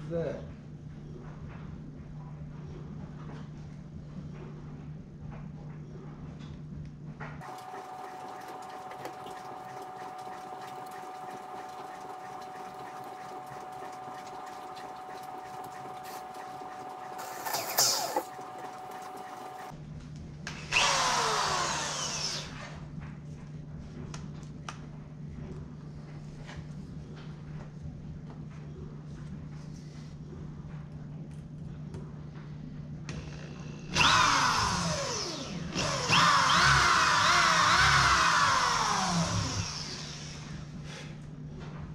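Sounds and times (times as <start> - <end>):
electric drill whirring: 7.4 - 19.7, 20.5 - 22.8, 33.1 - 40.7.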